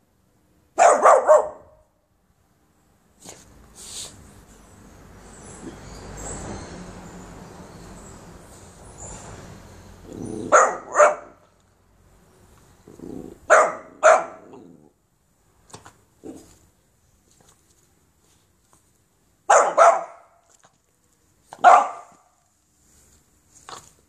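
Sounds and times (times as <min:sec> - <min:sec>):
puppy barking: 0:00.8 - 0:01.8, 0:10.4 - 0:11.5, 0:13.4 - 0:14.7, 0:19.5 - 0:20.4, 0:21.6 - 0:22.4.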